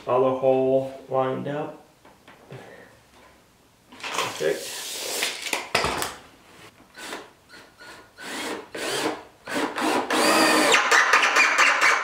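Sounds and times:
cordless drill motor whine: 7.8s - 10.7s.

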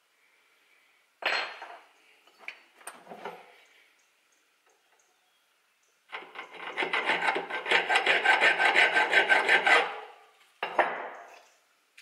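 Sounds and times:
hand file rasping on steel: 6.1s - 10.2s.

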